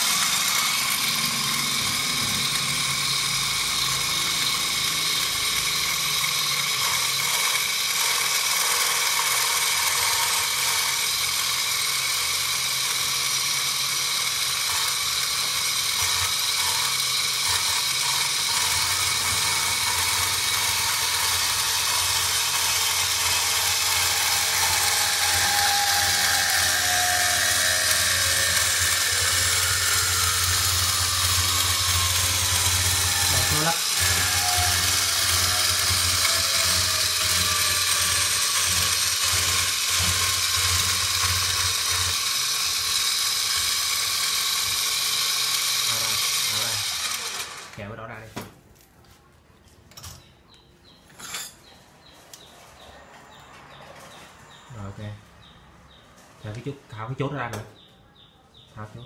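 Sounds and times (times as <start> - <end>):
pipe cutting machine running: 0.0 - 48.0.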